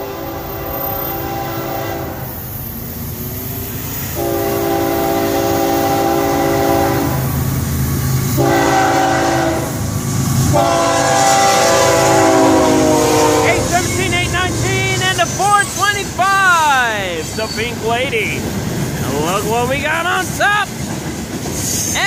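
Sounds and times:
train air horn blasts: 0.0 - 2.4, 4.1 - 7.4, 8.4 - 9.8, 10.5 - 13.7
diesel locomotive rumble: 0.0 - 22.0.

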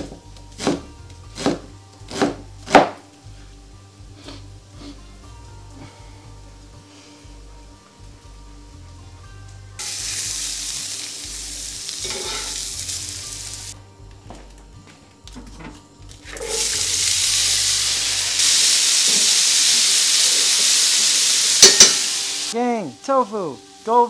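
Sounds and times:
low background music: 0.0 - 24.0
food sizzling in a skillet: 9.8 - 13.8, 16.2 - 24.0.

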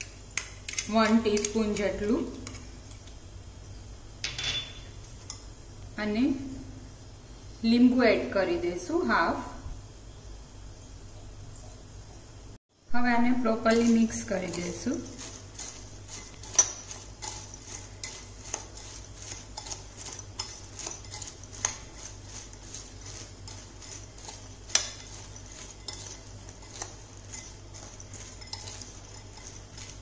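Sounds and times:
spoon stirring crispy corn: 0.0 - 3.2, 13.5 - 30.0
spoon clinking on glass: 4.2 - 5.0, 15.2 - 22.1, 22.7 - 30.0.

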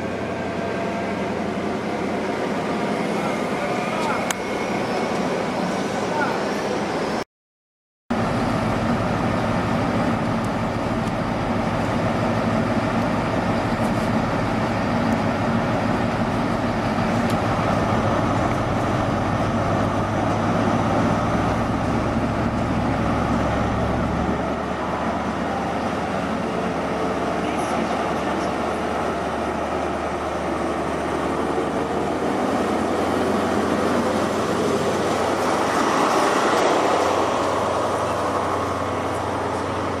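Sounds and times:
diesel engine droning: 8.1 - 40.0.

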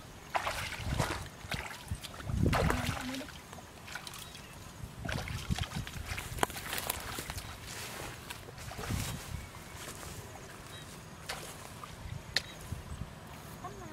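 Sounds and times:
feet splashing through water: 0.3 - 9.3, 9.9 - 12.5
footsteps on dry grass: 6.0 - 13.9.

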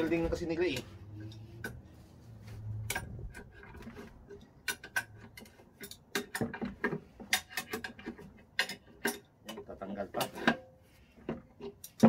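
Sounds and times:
metallic clicks of bench vise: 2.8 - 9.7.

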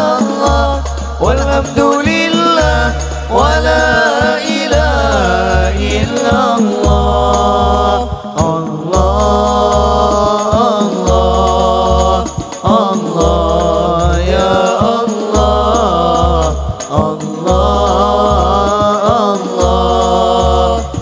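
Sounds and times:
drums with deep bass thud: 0.0 - 21.0
young men singing devotional song: 0.0 - 21.0.

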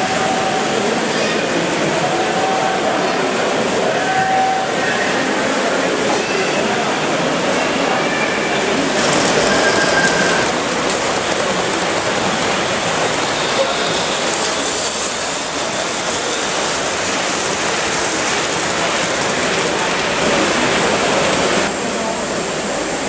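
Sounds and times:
wheels rolling on track: 8.8 - 23.0
model steam turbine hissing: 20.1 - 23.0.

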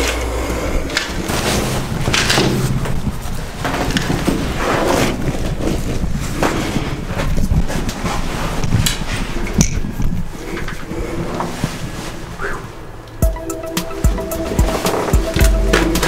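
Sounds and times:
clothing scraping against concrete: 10.3 - 12.4.

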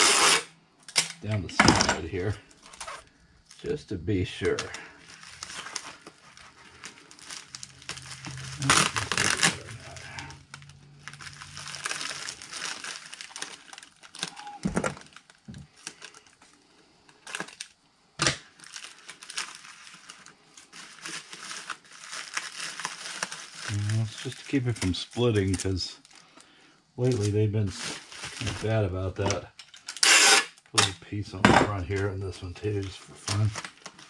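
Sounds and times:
packing tape pulled off roll: 0.0 - 1.2, 4.4 - 16.4, 17.1 - 26.2, 27.0 - 30.7
padded mailer crinkling: 2.0 - 16.5, 18.4 - 26.3, 27.0 - 30.0, 31.1 - 34.0.

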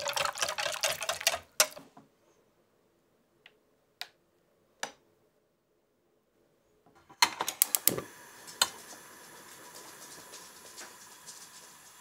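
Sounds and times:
gas flame hissing: 7.6 - 12.0.

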